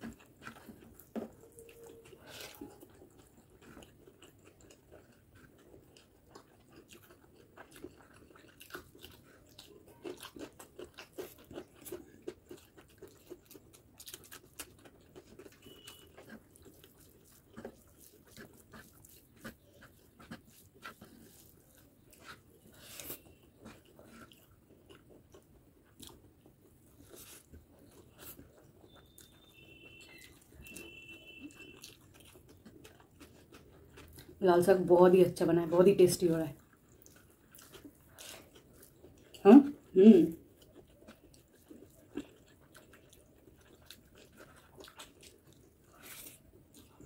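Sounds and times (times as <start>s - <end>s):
person chewing crunchy food: 0.0s - 34.4s, 36.6s - 47.0s.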